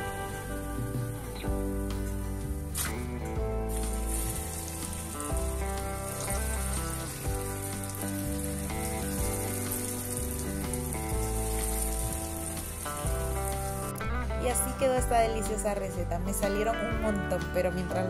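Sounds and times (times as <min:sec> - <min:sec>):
background music with bass: 0:00.0 - 0:18.0
dough sizzling in hot oil: 0:01.9 - 0:14.0.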